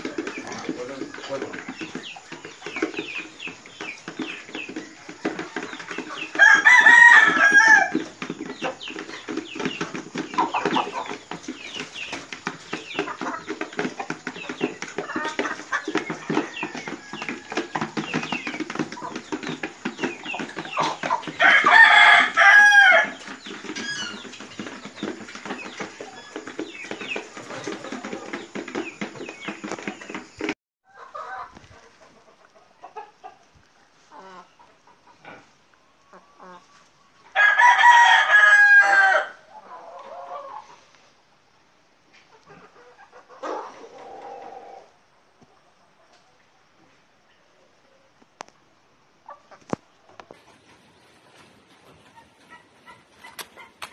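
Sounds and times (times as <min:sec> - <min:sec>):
chickens clucking: 0:00.0 - 0:53.9
rooster crowing: 0:06.2 - 0:08.0, 0:21.4 - 0:23.2, 0:37.3 - 0:39.4.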